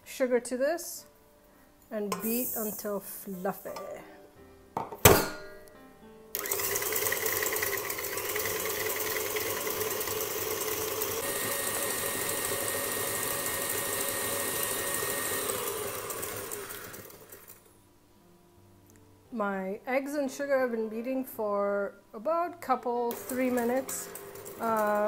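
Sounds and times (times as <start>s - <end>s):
stand mixer motor whine: 6.4s - 17.6s, 23.1s - 25.0s
whisk beating in steel bowl: 23.2s - 25.0s.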